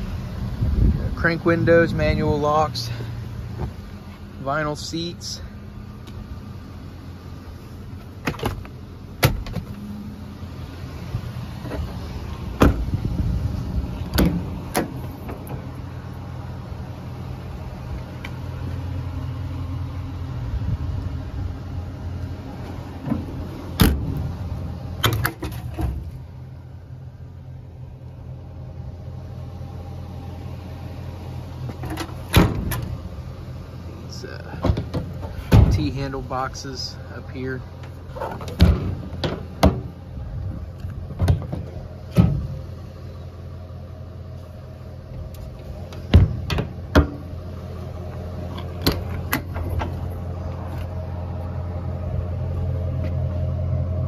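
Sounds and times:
steady low hum: 0:00.0 - 0:54.0
metal doors and latches clunking: 0:08.1 - 0:09.8, 0:11.6 - 0:13.1, 0:14.0 - 0:15.7, 0:22.6 - 0:24.4, 0:25.0 - 0:26.1, 0:31.7 - 0:33.0, 0:34.5 - 0:36.2, 0:37.7 - 0:40.0, 0:40.9 - 0:42.6, 0:45.1 - 0:47.5, 0:48.1 - 0:50.2.

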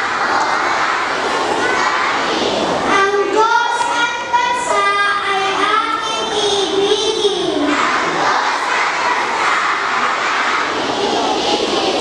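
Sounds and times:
girls chanting in unison: 0:00.0 - 0:04.0, 0:07.0 - 0:12.0
crowd hubbub: 0:00.0 - 0:12.0.

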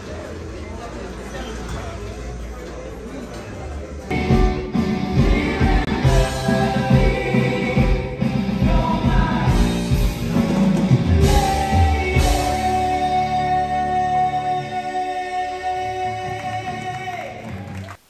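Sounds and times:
pounding drum beat: 0:04.1 - 0:12.7
live rock band: 0:04.1 - 0:17.9
lead singer singing: 0:04.2 - 0:10.4, 0:11.1 - 0:17.6.

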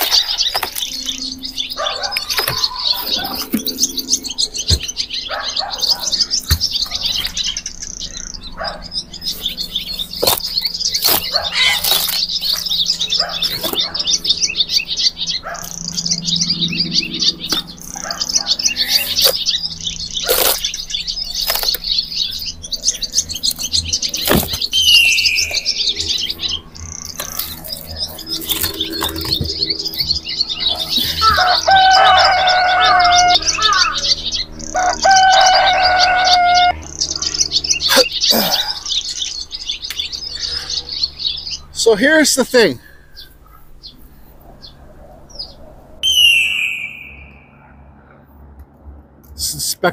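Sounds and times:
small birds chirping: 0:00.0 - 0:49.9
held tone with overtones: 0:46.0 - 0:47.8.

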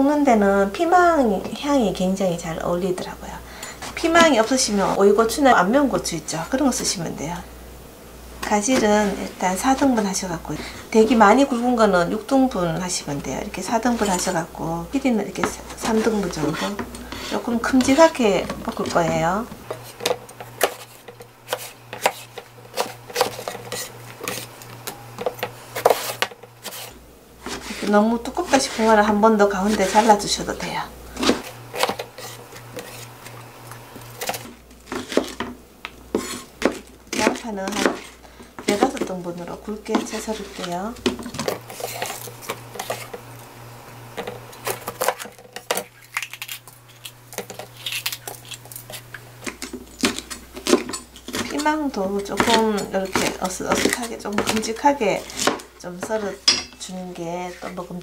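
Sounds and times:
knife slicing eggplant: 0:15.4 - 0:30.3, 0:31.2 - 0:35.4, 0:36.1 - 0:39.1, 0:44.6 - 0:56.4.

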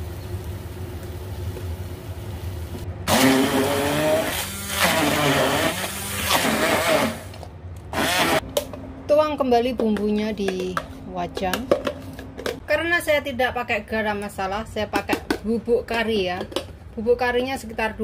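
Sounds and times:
electric blender grinding: 0:03.1 - 0:08.4.

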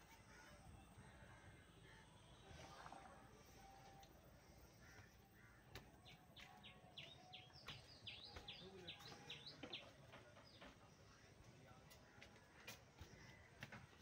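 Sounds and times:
low background noise: 0:00.0 - 0:14.0
bird chirping: 0:04.4 - 0:11.3.

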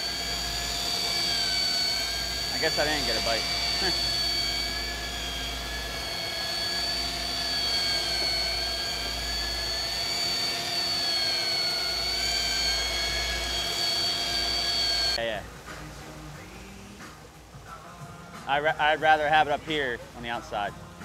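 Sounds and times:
boat engines whining and rumbling: 0:00.0 - 0:15.6.

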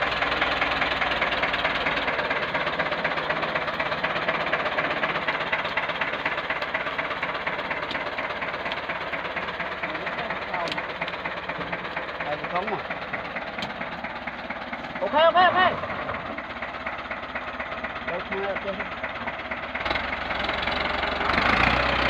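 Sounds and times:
tractor engine clattering: 0:00.0 - 0:22.0.

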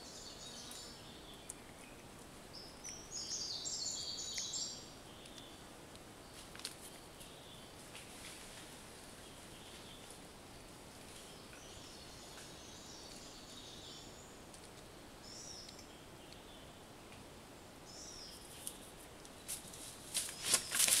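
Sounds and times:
birds chirping: 0:00.0 - 0:05.7, 0:09.1 - 0:10.3, 0:11.1 - 0:14.5
steady background hiss: 0:00.0 - 0:21.0
sharp rustling clicks: 0:19.5 - 0:21.0.

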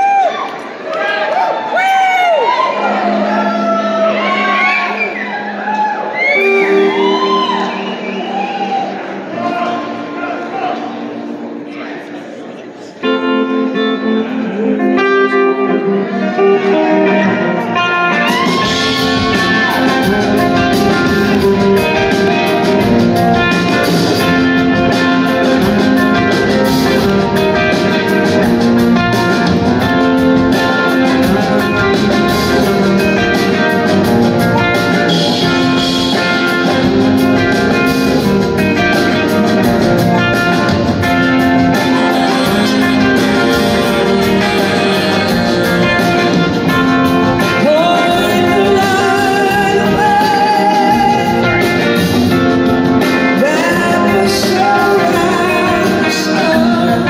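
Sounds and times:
electric guitars: 0:00.0 - 0:57.0
drum kit and cymbals: 0:18.2 - 0:57.0.

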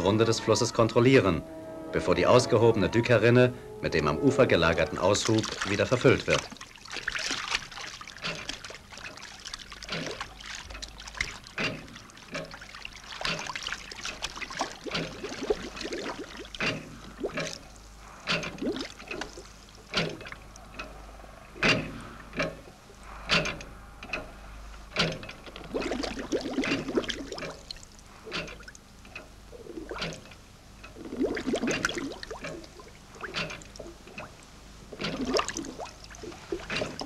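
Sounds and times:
river water splashing: 0:04.9 - 0:20.9, 0:25.0 - 0:28.8, 0:30.9 - 0:37.0.

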